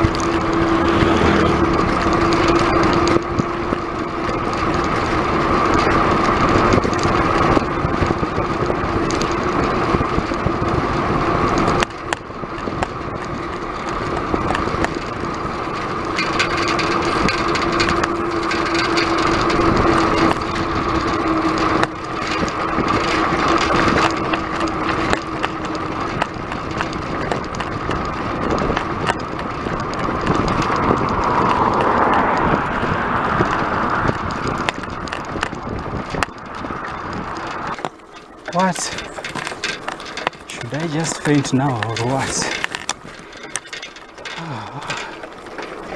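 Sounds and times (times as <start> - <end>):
bike tyre noise: 0.0 - 45.9
wind rush: 28.0 - 37.8.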